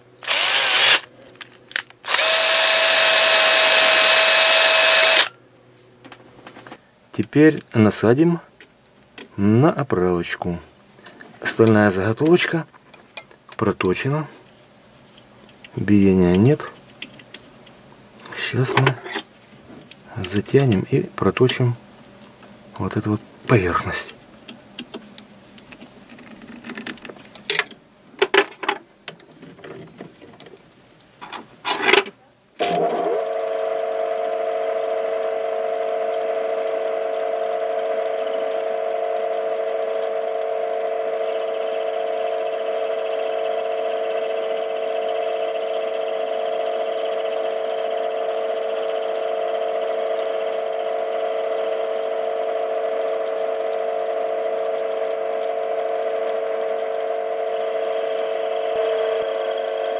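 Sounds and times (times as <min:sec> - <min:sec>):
lathe humming: 0:00.2 - 0:01.1, 0:02.0 - 0:05.3, 0:32.7 - 0:59.9.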